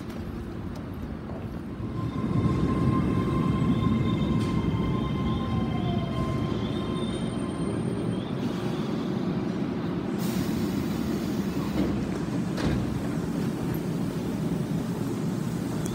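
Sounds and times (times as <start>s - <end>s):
train wheels rumbling: 0.0s - 15.9s
train brakes squealing: 1.7s - 12.0s
train doors hissing open: 6.4s - 15.9s.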